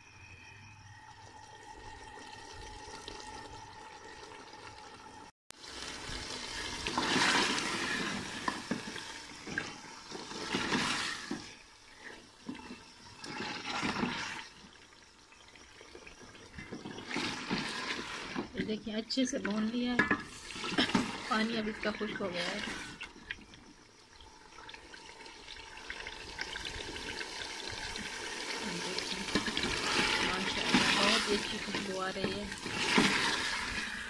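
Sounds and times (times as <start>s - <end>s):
thick sauce bubbling and sizzling: 1.3s - 18.6s, 19.2s - 34.0s
wooden spoon scraping a pot: 6.8s - 14.5s, 16.5s - 18.8s, 19.4s - 23.2s.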